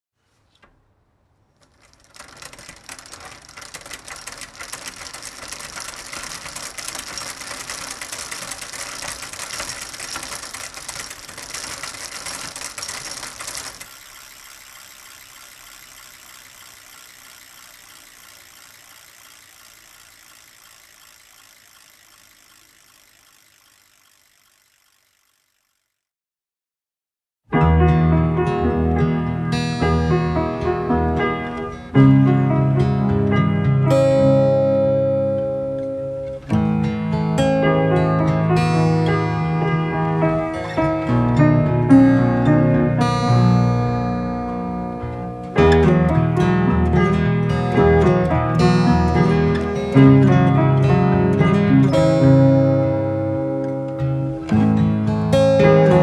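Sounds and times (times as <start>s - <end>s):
rapid mechanical clicking: 1.5s - 26.1s, 38.6s - 56.0s.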